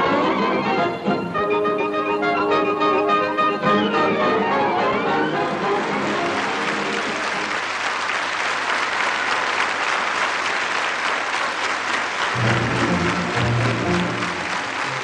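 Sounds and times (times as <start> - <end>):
low music notes: 0.0 - 7.4, 12.4 - 15.0
audience applauding: 5.1 - 15.0.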